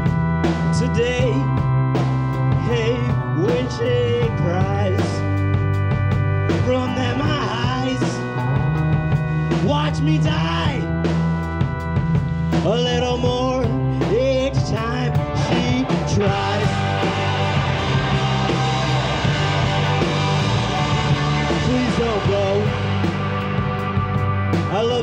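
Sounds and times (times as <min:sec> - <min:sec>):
indie rock band playing live: 0:00.0 - 0:25.0
man singing: 0:00.6 - 0:01.7, 0:02.5 - 0:05.4, 0:06.5 - 0:08.9, 0:09.5 - 0:11.0, 0:12.5 - 0:17.6, 0:21.4 - 0:22.9, 0:24.7 - 0:25.0.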